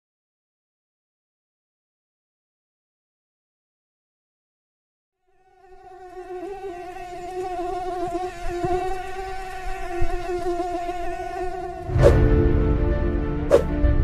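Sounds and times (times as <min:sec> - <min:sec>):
mosquito whining: 0:05.3 - 0:12.2.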